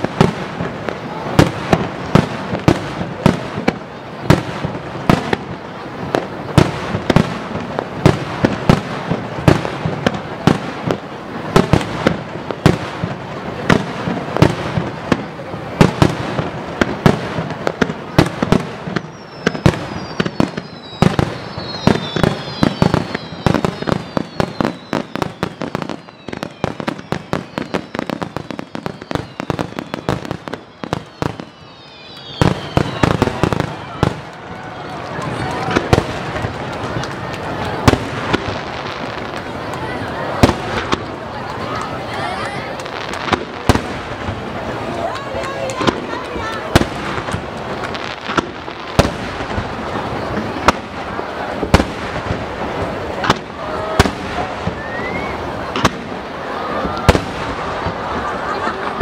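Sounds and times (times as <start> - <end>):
firework shells bursting: 6.2 - 41.6, 42.7 - 58.2
firework whistles falling in pitch: 18.1 - 36.3, 53.2 - 58.0.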